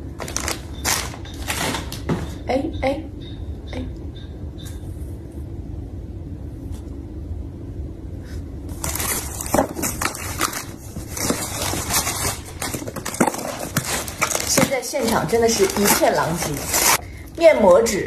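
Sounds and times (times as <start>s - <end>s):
low room hum: 0.0s - 18.0s
packaging crinkling and rustling: 0.2s - 2.2s, 8.7s - 17.0s.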